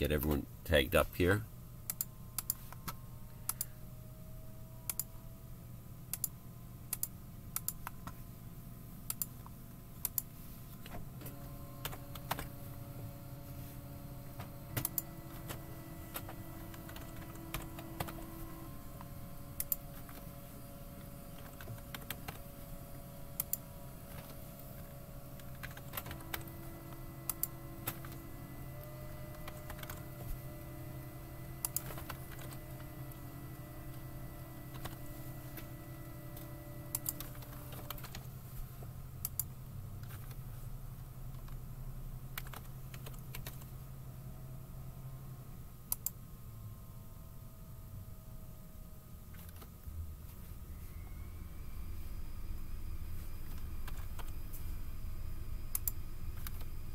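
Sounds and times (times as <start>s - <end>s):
steady low hum: 0.0s - 56.9s
keyboard keystroke clicks: 36.9s - 38.1s.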